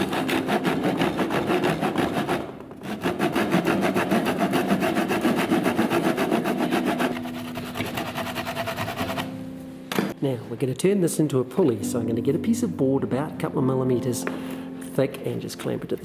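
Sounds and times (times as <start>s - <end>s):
hand saw rasping: 0.0s - 9.4s.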